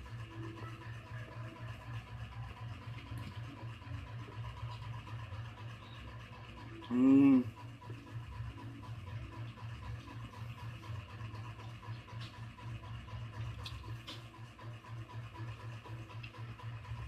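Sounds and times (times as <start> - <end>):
person humming mmm: 6.8 - 7.6.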